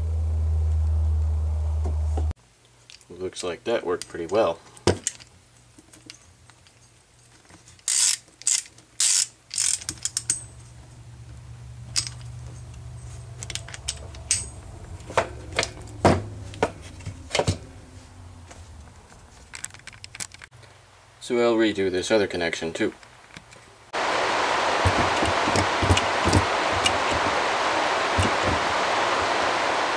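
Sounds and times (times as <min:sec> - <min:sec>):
low steady hum: 0:00.0 - 0:07.9, 0:08.8 - 0:22.0, 0:22.9 - 0:29.9
metal hardware clicking: 0:07.8 - 0:10.6, 0:11.9 - 0:17.6.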